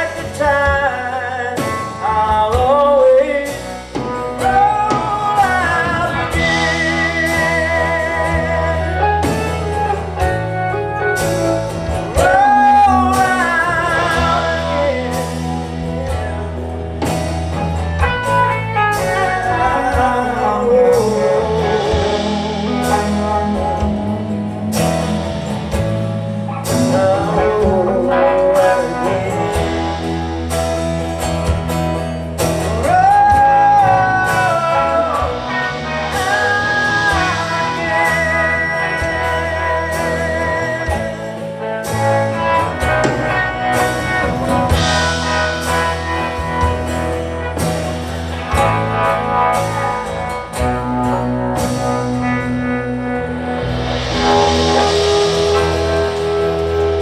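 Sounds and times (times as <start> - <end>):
man singing: 0.0 - 31.6, 32.5 - 57.0
bass guitar: 0.0 - 57.0
drum kit: 0.0 - 57.0
electric guitars: 0.0 - 57.0.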